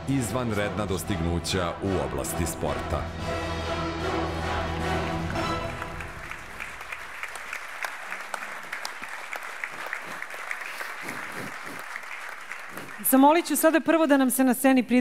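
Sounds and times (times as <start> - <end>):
film music: 0.0 - 7.4
audience applauding: 4.2 - 14.0.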